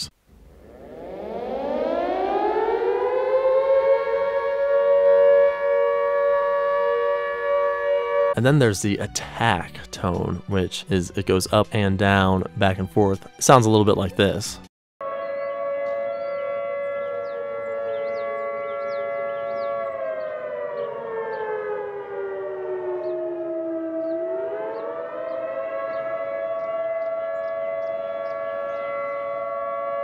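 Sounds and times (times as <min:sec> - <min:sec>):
warning siren wailing: 0:00.0 - 0:08.5, 0:15.0 - 0:30.0.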